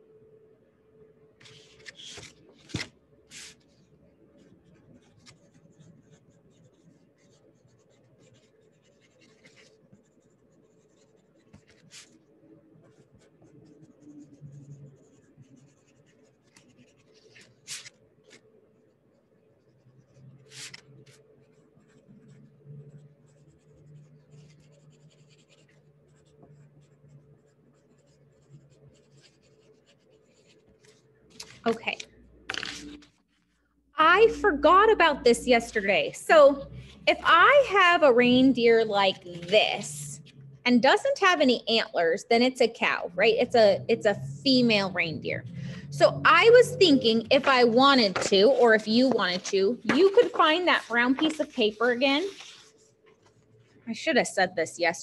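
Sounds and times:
pen scratching on paper: 0:01.4 - 0:33.0, 0:46.4 - 0:53.4.

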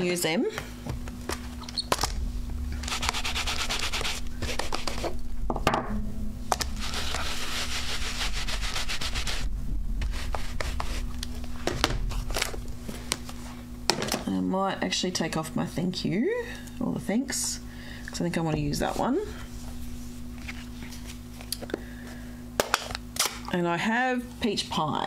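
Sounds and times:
dry hissing rubbing on pad: 0:02.8 - 0:05.2, 0:06.7 - 0:11.2.

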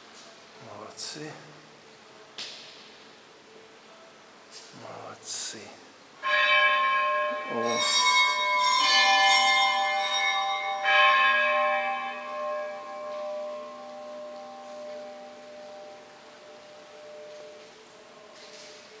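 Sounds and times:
church bells ringing: 0:06.2 - 0:18.7.

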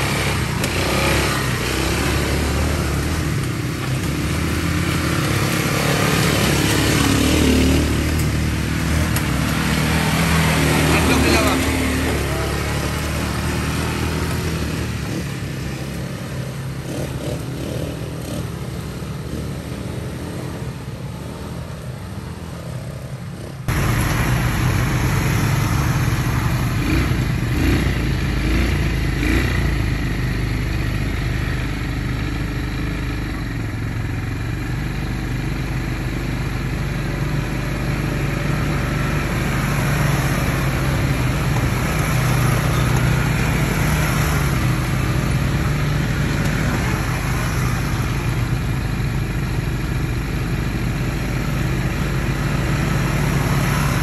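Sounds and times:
atv engine running: 0:00.0 - 0:54.0.

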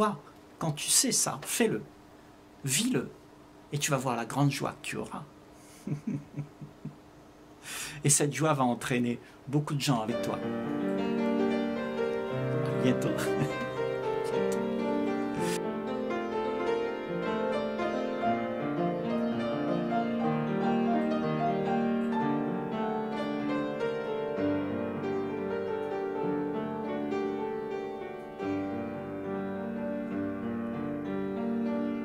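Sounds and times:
slow piano chords: 0:10.0 - 0:32.0.

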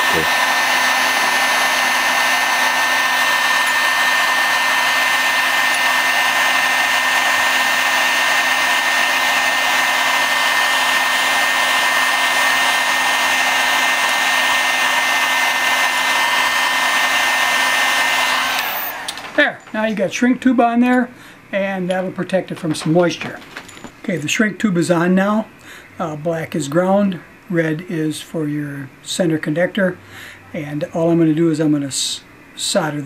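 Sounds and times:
heat gun blowing air: 0:00.0 - 0:19.4.

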